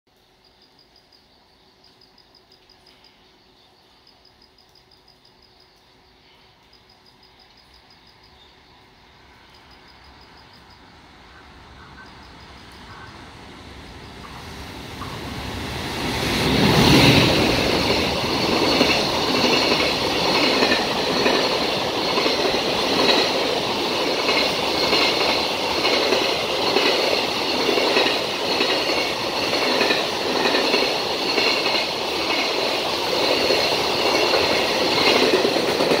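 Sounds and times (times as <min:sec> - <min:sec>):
high ringing from train wheels: 0:01.9 - 0:11.0, 0:14.0 - 0:36.0
electric locomotive passing: 0:02.0 - 0:36.0
wagons clattering over rails: 0:16.6 - 0:36.0.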